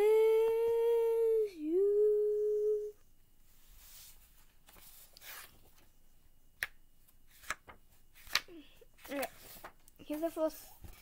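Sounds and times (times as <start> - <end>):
girl singing held note: 0.0 - 3.0
paper rustling: 3.8 - 5.9, 7.3 - 11.0.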